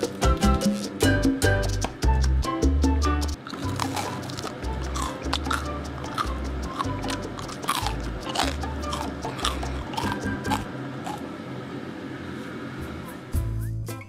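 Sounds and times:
crunchy biting and chewing: 0.0s - 1.2s, 3.4s - 11.3s
background music: 0.0s - 10.7s.

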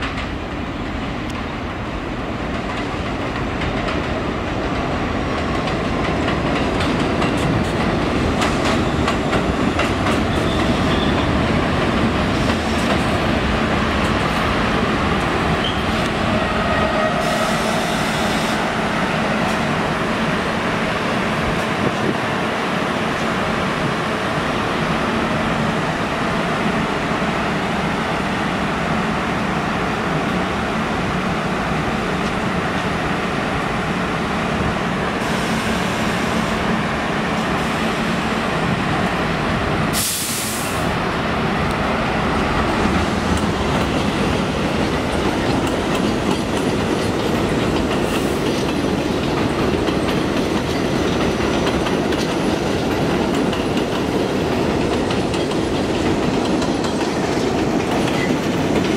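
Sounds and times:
train humming: 0.0s - 58.9s
train motors and wheels: 0.0s - 58.9s
wheels clacking over rail joints: 2.4s - 16.2s, 42.6s - 58.9s
air brake hiss: 17.1s - 18.6s, 39.9s - 40.9s.

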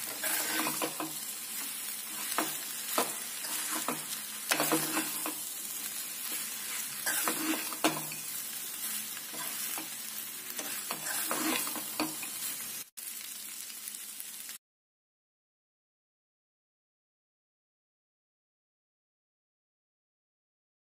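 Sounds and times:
metal spatula scraping pan: 0.0s - 5.6s, 6.2s - 12.6s
food sizzling in a pan: 0.0s - 14.6s.

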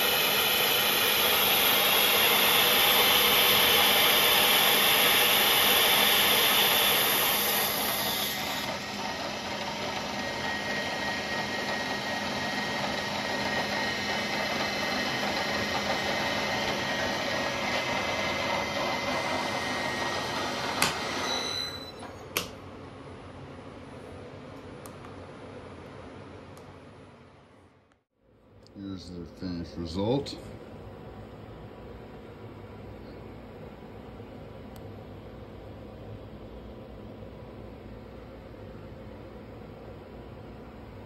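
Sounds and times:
milling machine spindle whine: 0.0s - 22.4s.

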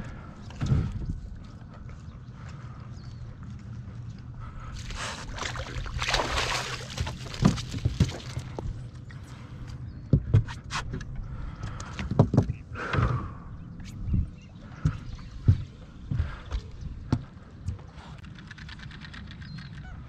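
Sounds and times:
water sloshing against boat: 4.4s - 9.8s.

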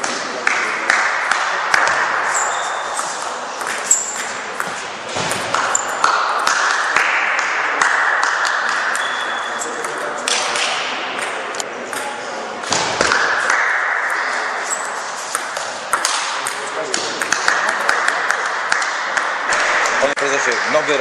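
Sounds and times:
table tennis ball knocks: 3.6s - 6.9s, 15.3s - 19.9s.

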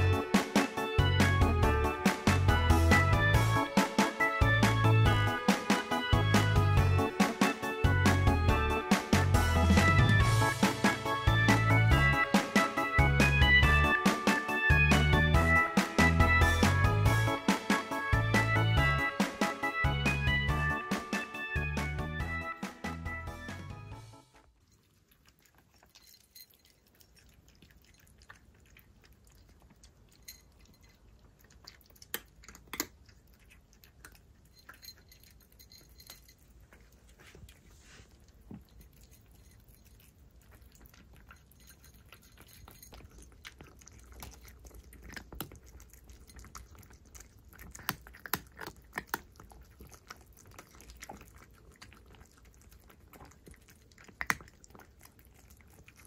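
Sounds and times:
cats chewing and crunching food: 0.0s - 22.5s, 23.2s - 56.0s.

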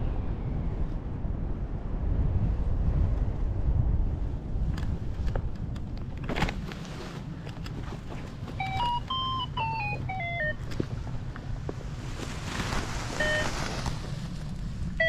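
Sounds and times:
wind rumbling on microphone: 0.0s - 15.0s
electronic pitched beeps: 8.6s - 10.6s, 13.2s - 13.6s.

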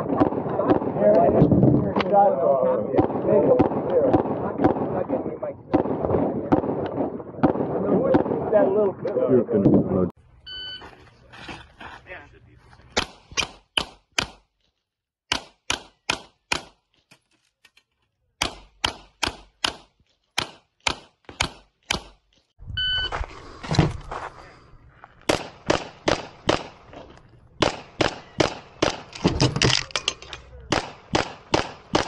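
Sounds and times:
pistol shots: 25.3s - 26.9s, 27.6s - 29.2s, 30.7s - 32.0s.

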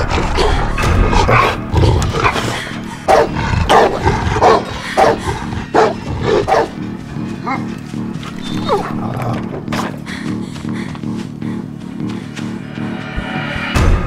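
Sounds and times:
dog barking: 3.1s - 6.8s.

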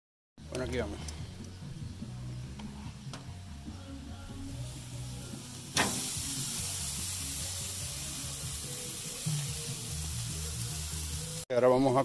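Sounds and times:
background music: 0.4s - 12.0s
steak sizzling on grill: 4.4s - 11.5s.

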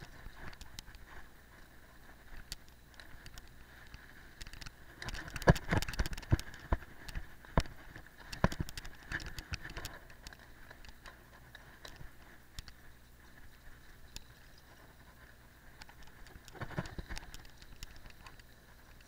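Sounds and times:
faint steady running noise: 0.0s - 19.0s
bike knocking over rough ground: 4.5s - 12.2s.

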